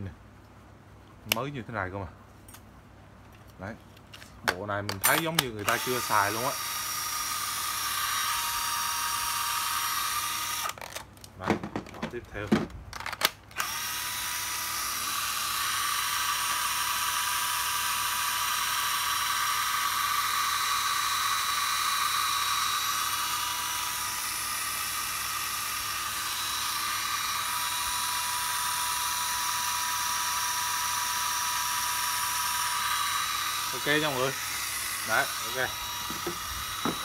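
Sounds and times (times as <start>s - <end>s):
cordless drill whining: 5.1s - 11.0s, 13.5s - 37.0s.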